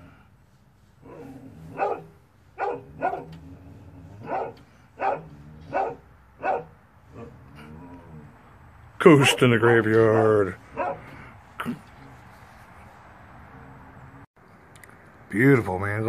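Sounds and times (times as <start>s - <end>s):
dog barking: 1.0s - 3.4s, 4.2s - 7.3s, 9.1s - 11.3s.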